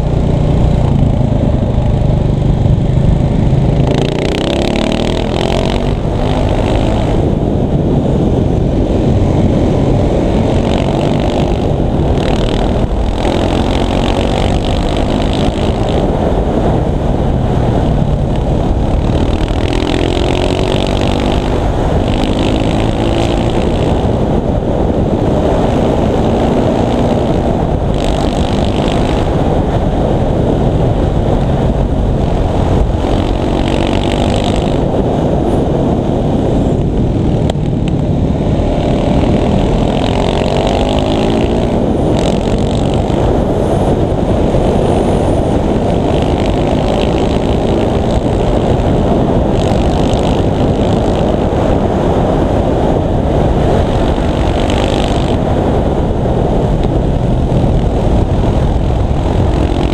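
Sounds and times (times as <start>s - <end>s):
motorcycle engine revving: 0.0s - 59.9s
wind rush on microphone: 0.0s - 59.9s.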